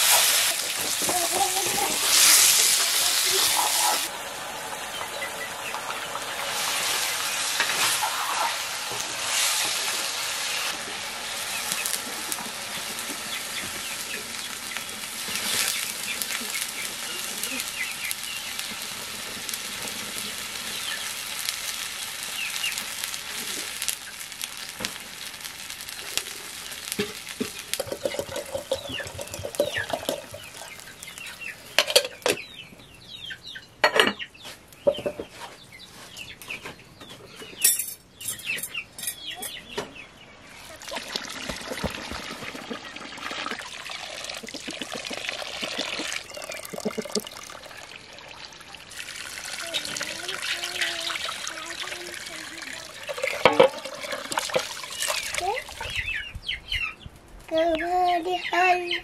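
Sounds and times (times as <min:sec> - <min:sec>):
curry sizzling in a wok: 0:00.0 - 0:32.3, 0:40.6 - 0:55.8
chickens clucking: 0:00.8 - 0:09.1, 0:27.0 - 0:37.6, 0:38.4 - 0:47.3.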